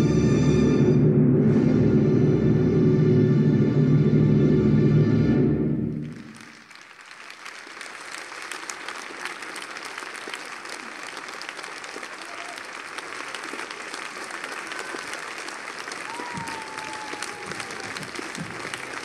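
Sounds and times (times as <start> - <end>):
audience applauding: 5.9 - 19.0.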